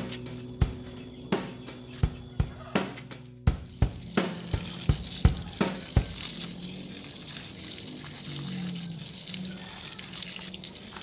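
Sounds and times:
drum beat: 0.0 - 7.2
hose water splashing on soil: 3.6 - 11.0.

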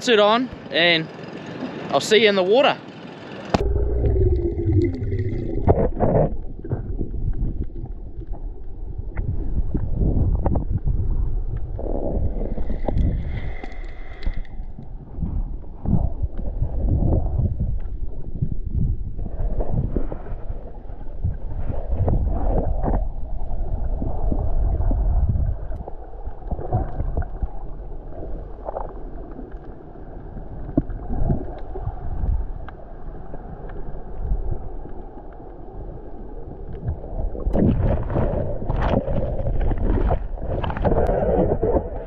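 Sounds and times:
underwater rush and gurgle: 0.0 - 42.0
water splashing: 3.2 - 10.2, 36.4 - 42.0
small clicks: 12.8 - 14.6.

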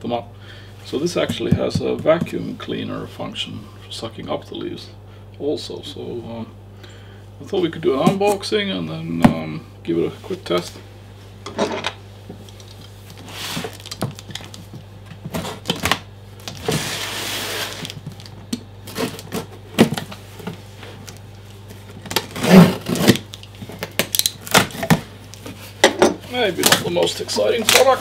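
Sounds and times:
rasping cardboard scrape: 22.3 - 23.1.

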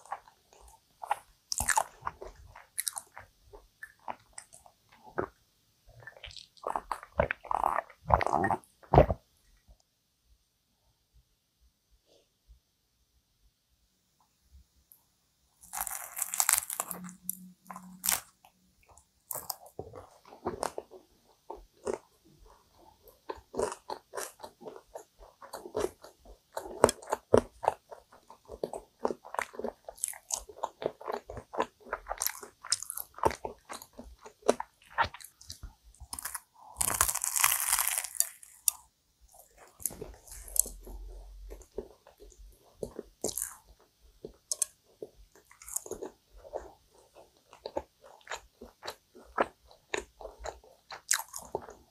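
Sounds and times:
chewing: 0.0 - 5.4, 6.0 - 9.2, 15.6 - 51.9
flaky crust crackling: 15.6 - 22.1, 23.1 - 51.8
pastry crunching: 15.6 - 22.2, 23.1 - 51.8.

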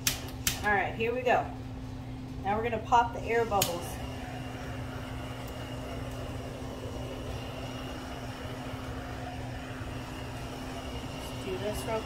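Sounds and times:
torch flame hissing: 3.2 - 12.0.

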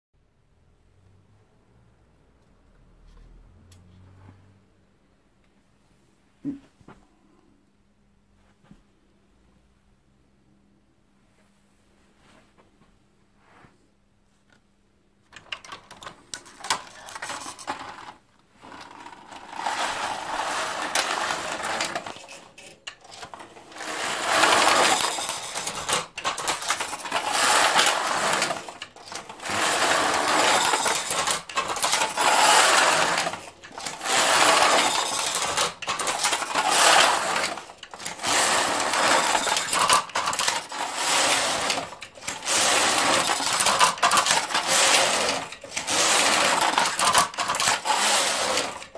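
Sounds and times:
knitting machine carriage rattling: 15.3 - 48.9.

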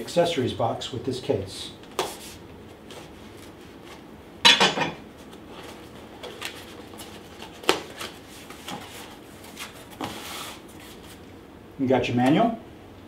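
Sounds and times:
cardboard flaps rustling: 5.2 - 11.2
cardboard box scrape: 8.6 - 11.1.

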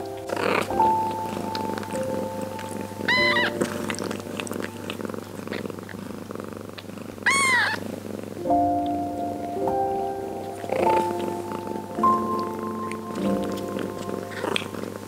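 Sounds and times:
soft background music: 0.0 - 6.1, 8.3 - 15.0
soft licking clicks: 0.0 - 7.8, 10.4 - 15.0
cat purring: 0.0 - 15.0
kitten mewing: 0.2 - 6.0, 6.8 - 7.8, 10.5 - 15.0.

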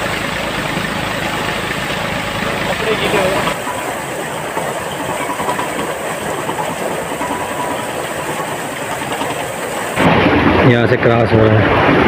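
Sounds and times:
water gushing and splashing: 0.0 - 12.0.

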